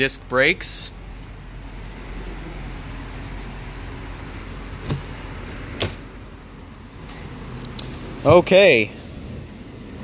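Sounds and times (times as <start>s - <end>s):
steady low hum: 0.0s - 10.0s
car door latch clicks: 5.8s - 6.0s.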